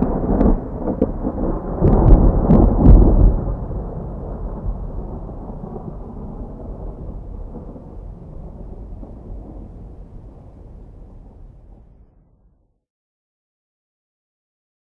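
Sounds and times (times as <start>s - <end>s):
rolling thunder: 0.0s - 12.4s.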